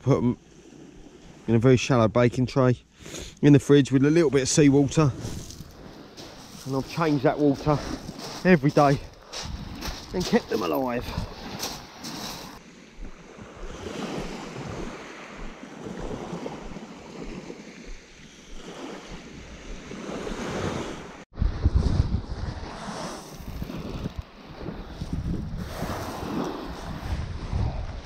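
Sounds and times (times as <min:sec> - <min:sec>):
waves washing onto shingle: 0:04.1 - 0:21.2, 0:22.8 - 0:27.2
wind on microphone: 0:05.0 - 0:28.0.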